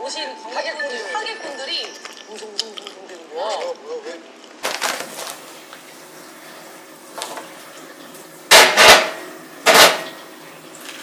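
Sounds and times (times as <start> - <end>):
plastic bag crinkling: 1.7 - 6.0.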